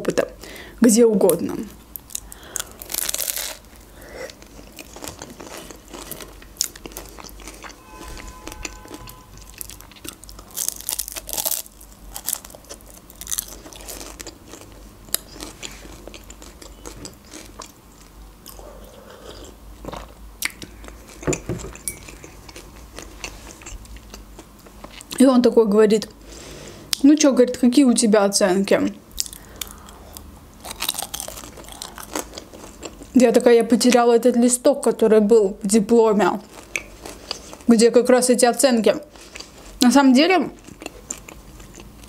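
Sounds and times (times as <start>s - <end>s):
soft chewing: 1.9s - 7.8s, 8.5s - 25.2s, 29.1s - 33.2s, 36.4s - 37.7s, 39.1s - 39.8s, 40.5s - 42.0s
crunching crisp pastry: 1.9s - 18.6s, 29.1s - 33.2s, 36.3s - 37.8s, 40.5s - 42.0s.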